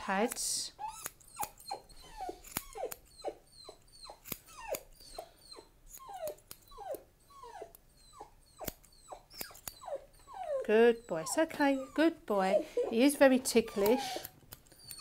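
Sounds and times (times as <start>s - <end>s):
grooming scissors clicking: 0.2s - 1.8s, 2.4s - 3.2s, 3.8s - 5.0s, 5.9s - 6.8s, 8.6s - 9.8s, 13.5s - 15.0s
puppy whimpering: 0.7s - 15.0s.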